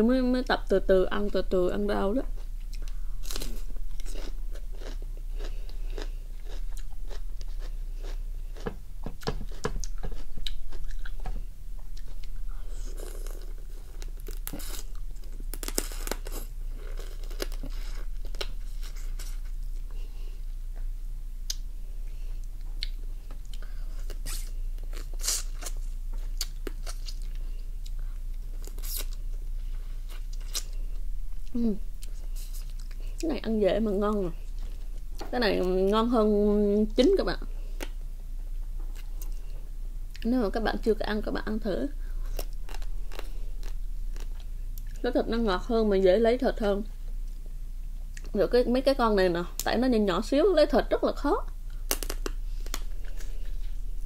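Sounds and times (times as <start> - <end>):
person chewing crunchy crab: 2.4 - 11.2, 11.8 - 19.9, 30.0 - 33.2, 42.2 - 45.0.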